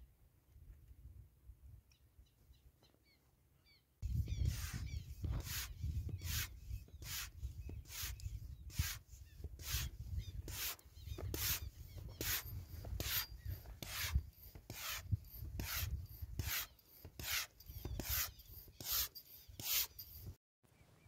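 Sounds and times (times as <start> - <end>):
hand pump strokes hissing: 4.4 - 20.4.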